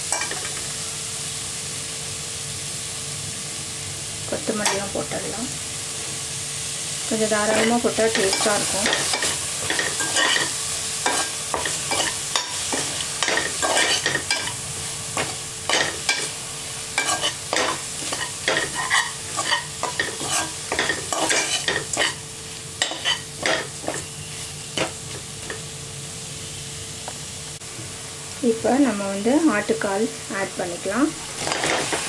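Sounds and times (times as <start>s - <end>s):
food sizzling in pot: 0.0s - 32.0s
spatula scraping pot: 11.1s - 14.6s, 17.0s - 22.2s.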